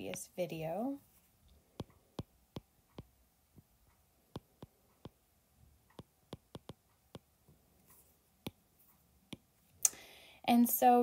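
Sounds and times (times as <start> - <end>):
stylus tapping on glass screen: 1.7 - 5.2, 5.8 - 7.4, 8.4 - 8.6.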